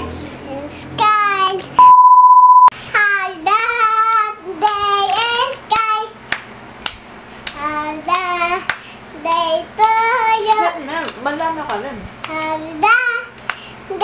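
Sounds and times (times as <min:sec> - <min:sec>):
girl singing: 0:00.0 - 0:01.8, 0:02.9 - 0:06.2, 0:07.4 - 0:10.8, 0:12.2 - 0:14.0
hands clapping: 0:04.6 - 0:09.5, 0:11.0 - 0:12.4, 0:13.4 - 0:13.7.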